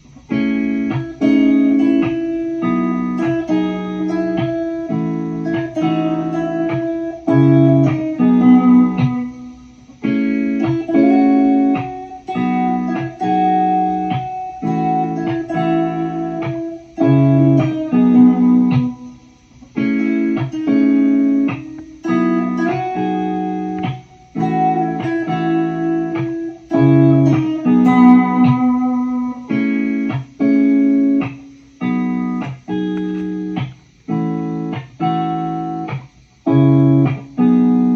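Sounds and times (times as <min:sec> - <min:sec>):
plucked guitar chords: 0:00.0 - 0:37.9.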